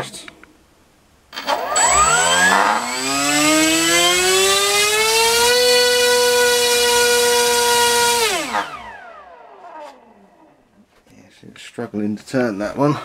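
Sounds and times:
electric motor whine: 1.3s - 10.6s.

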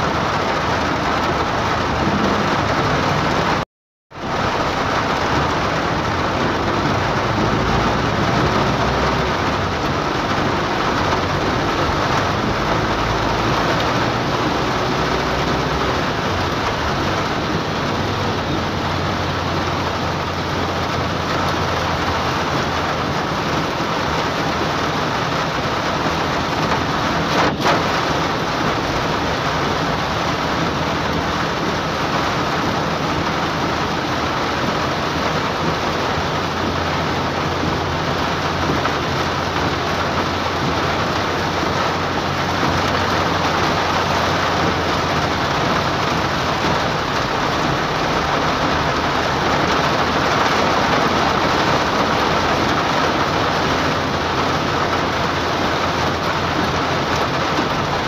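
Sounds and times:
hard rain on a car roof: 0.0s - 58.0s
car drone: 4.2s - 58.0s.

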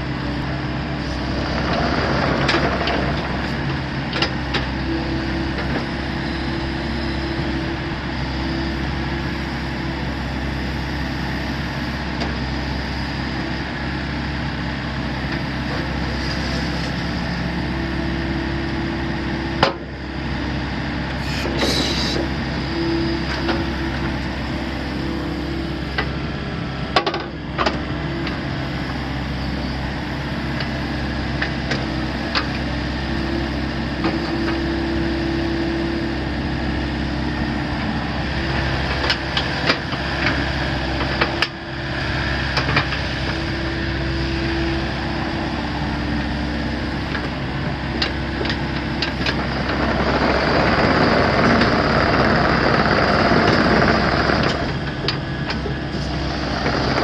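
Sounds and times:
excavator engine running: 0.0s - 57.0s
hydraulic whine: 15.2s - 57.0s.

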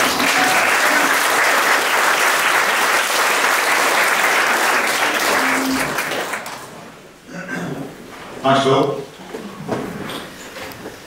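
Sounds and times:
crowd clapping: 0.0s - 6.8s.

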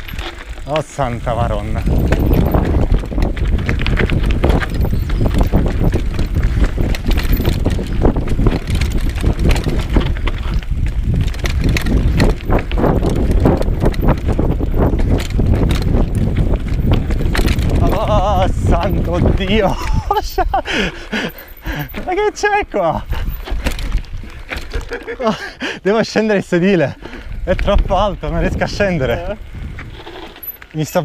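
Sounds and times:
wind buffeting microphone: 0.0s - 30.8s
bike rattling over bumps: 0.0s - 31.0s
tyres rumbling on dirt: 0.0s - 31.0s.

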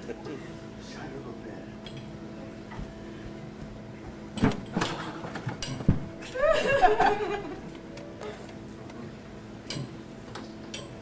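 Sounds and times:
steady electrical hum: 0.0s - 11.0s
microphone knocks and thumps: 5.8s - 6.2s.

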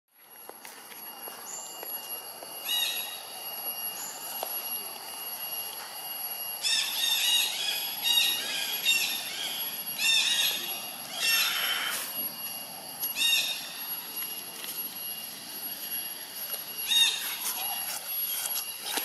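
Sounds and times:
thin high whine: 0.1s - 19.0s
high arching chirp calls: 2.6s - 3.3s, 6.6s - 12.2s, 13.1s - 14.0s, 16.8s - 18.5s.

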